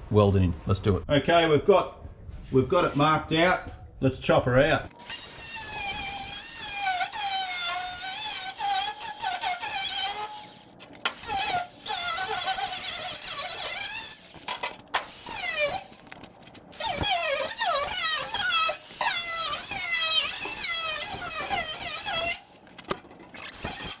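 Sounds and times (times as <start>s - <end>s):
angle grinder cutting metal: 5.0s - 16.0s, 16.7s - 22.5s, 23.3s - 24.0s.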